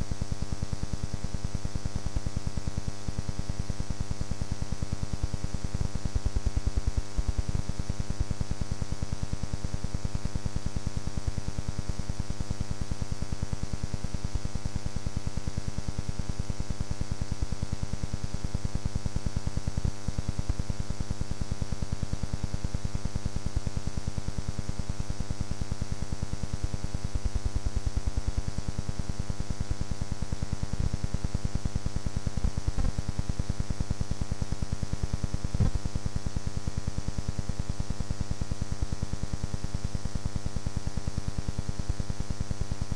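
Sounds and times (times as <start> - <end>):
electrical hum and buzz with hiss: 0.0 - 42.9.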